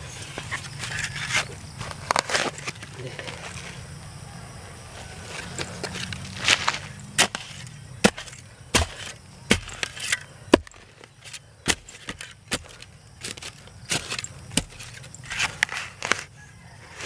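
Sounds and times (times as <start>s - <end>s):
dirt scraping: 0.0s - 4.0s, 4.9s - 17.0s
spade chopping into soil: 5.9s - 16.3s.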